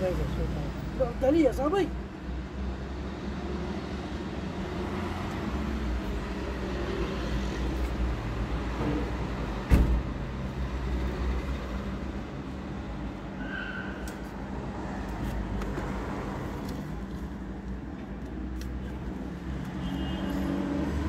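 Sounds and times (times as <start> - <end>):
sharp thump: 9.6 - 10.2.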